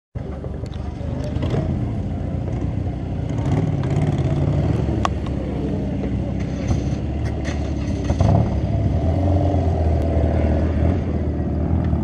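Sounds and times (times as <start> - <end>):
motorcycle engine idling: 0.2 - 8.8.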